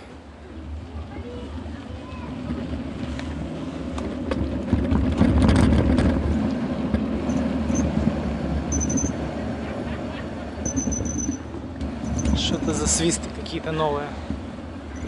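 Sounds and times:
bicycle rumbling over bricks: 0:01.9 - 0:13.5.

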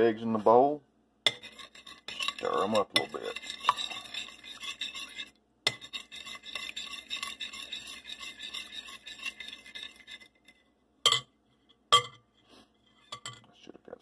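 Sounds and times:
spoon beating eggs in glass bowl: 0:01.3 - 0:12.2.

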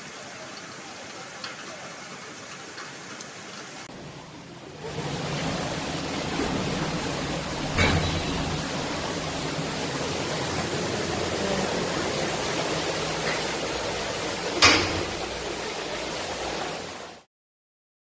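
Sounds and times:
floodwater rushing: 0:00.0 - 0:17.3
loud splash or knock: 0:06.3 - 0:09.0, 0:14.6 - 0:15.4.

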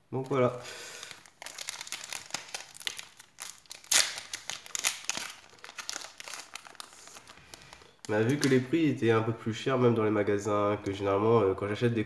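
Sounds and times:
foil wrapper crinkling: 0:00.2 - 0:08.7.

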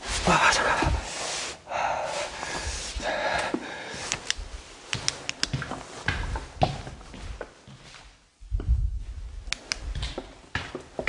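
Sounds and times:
man breathing out heavily: 0:00.2 - 0:04.1.

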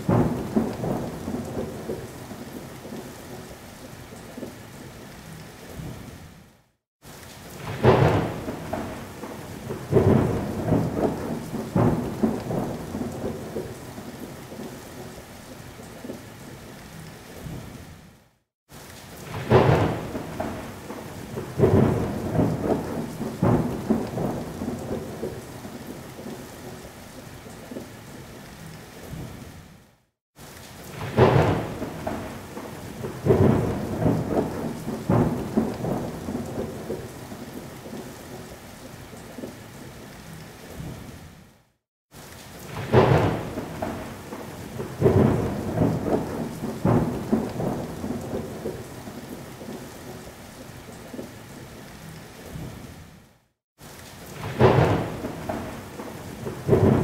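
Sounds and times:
thunder cracks and rumbles: 0:00.0 - 0:02.1, 0:07.6 - 0:13.8, 0:19.2 - 0:25.4, 0:30.9 - 0:38.0, 0:42.7 - 0:48.8, 0:54.3 - 0:57.0
steady rain: 0:00.0 - 0:57.0.

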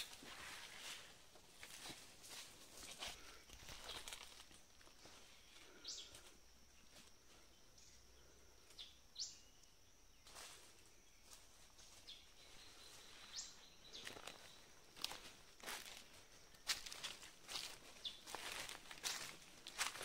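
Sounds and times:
footsteps on dry leaves: 0:00.0 - 0:05.3, 0:10.2 - 0:20.0
high insect drone: 0:00.0 - 0:20.0.

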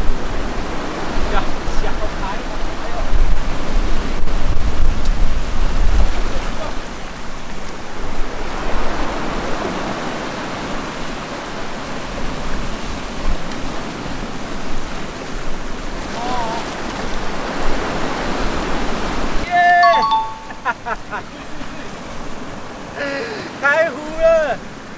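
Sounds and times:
wind noise: 0:00.0 - 0:10.9
surf washing against rocks: 0:00.0 - 0:24.9.

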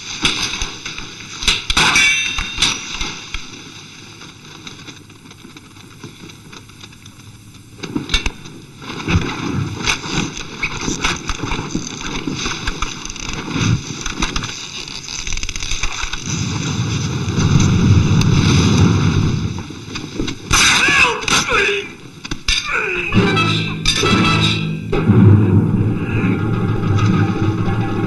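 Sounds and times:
rushing noise: 0:23.0 - 0:28.0.

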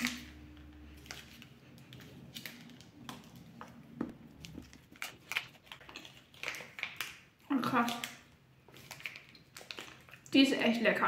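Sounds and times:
chocolate bar bitten and chewed: 0:00.0 - 0:10.4
plastic wrapper crackling: 0:04.3 - 0:10.5.

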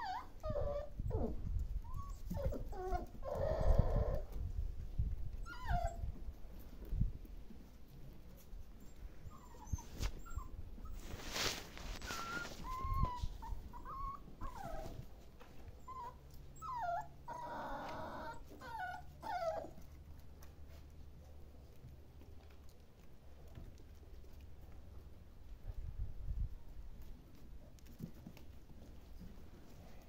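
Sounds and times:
puppy crying: 0:00.0 - 0:04.2
puppies whimpering: 0:00.0 - 0:04.3, 0:05.4 - 0:06.2, 0:08.8 - 0:11.0, 0:12.0 - 0:15.0, 0:15.8 - 0:19.8
fur rustling against phone: 0:09.7 - 0:10.2, 0:10.8 - 0:13.8.

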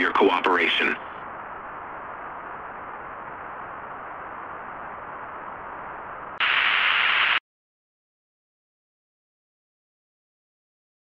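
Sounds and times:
broadcast static hiss: 0:00.0 - 0:07.4
harsh static burst: 0:00.0 - 0:07.4.

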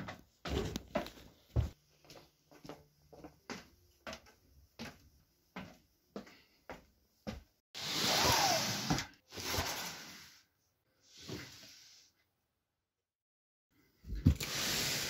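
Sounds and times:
footsteps walking: 0:00.0 - 0:07.5.

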